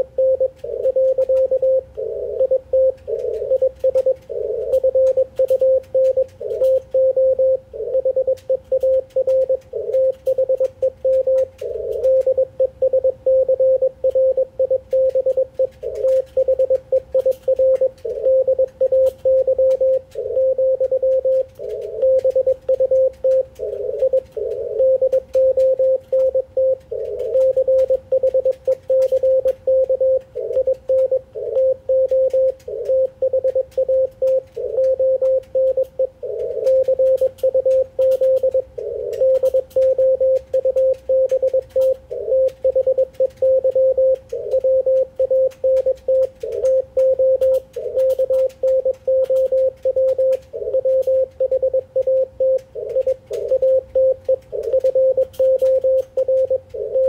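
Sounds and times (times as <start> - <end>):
faint static crackles: 0.0 - 57.0
morse code tone: 0.0 - 57.0.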